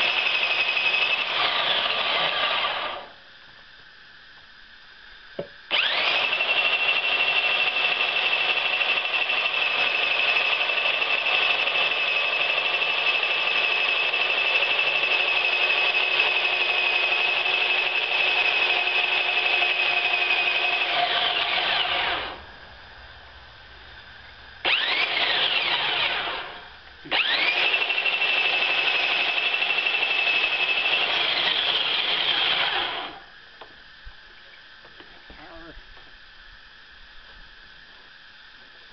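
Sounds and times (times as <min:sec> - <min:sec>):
saw motor high whine: 0:00.0 - 0:03.2, 0:05.7 - 0:22.5, 0:24.6 - 0:33.3.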